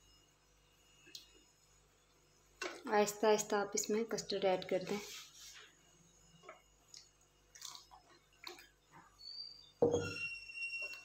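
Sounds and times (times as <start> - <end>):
clunk with ringing tone: 9.8 - 11.0.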